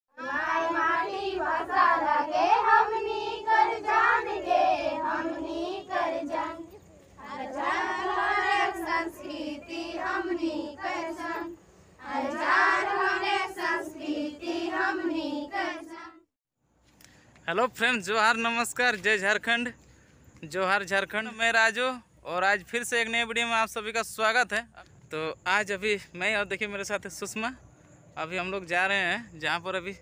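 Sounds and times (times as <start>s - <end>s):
girls singing in unison: 0.1s - 16.2s.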